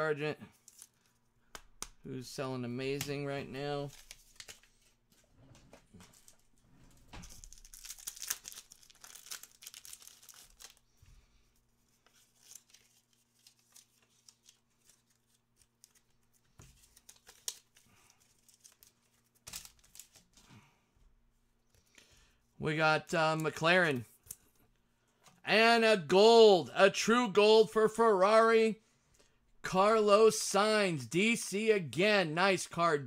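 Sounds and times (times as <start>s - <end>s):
cards rustling and clicking: 0.5s - 2.0s, 2.8s - 6.5s, 7.2s - 11.0s, 11.8s - 20.5s
wrapper crinkling and tearing: 7.2s - 10.9s, 12.0s - 20.4s.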